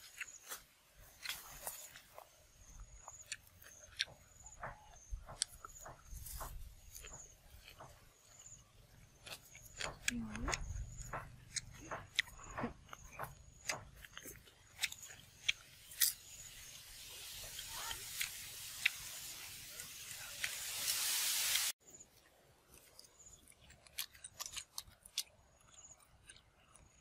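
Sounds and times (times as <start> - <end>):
crunchy chewing: 0.0 - 27.0
hiss: 16.5 - 21.8.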